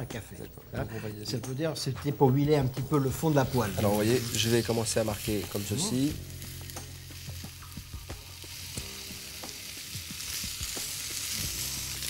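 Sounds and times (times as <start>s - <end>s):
pork sizzling in frying pan: 2.6s - 12.0s.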